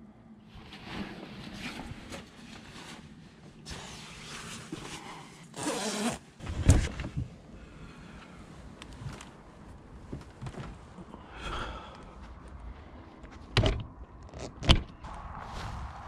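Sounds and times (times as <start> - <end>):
rustling of movement: 0.5 - 16.0
zip-like rasp: 5.6 - 6.2
door thumping open: 13.6 - 13.9.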